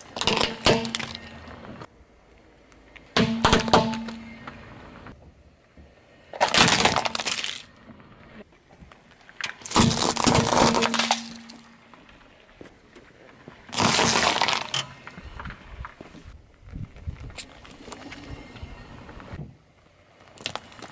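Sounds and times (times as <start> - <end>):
tyre crushing objects: 0.0 - 1.2, 6.4 - 7.6, 9.6 - 11.7, 13.7 - 14.9.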